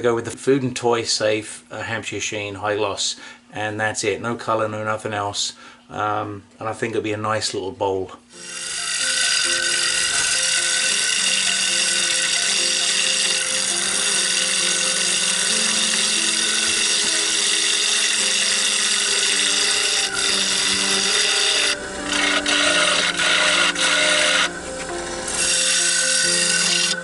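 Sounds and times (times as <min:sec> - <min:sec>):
background music: 0:08.3 - 0:27.0
gouge cutting spinning wood: 0:08.4 - 0:27.0.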